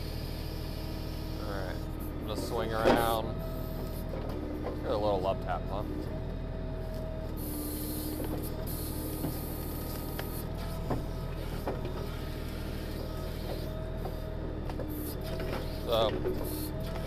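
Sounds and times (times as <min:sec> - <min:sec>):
hiss: 0:00.0 - 0:01.8, 0:07.4 - 0:10.7, 0:14.9 - 0:17.0
hydraulic whine: 0:00.0 - 0:17.0
tractor diesel engine running: 0:00.0 - 0:17.0.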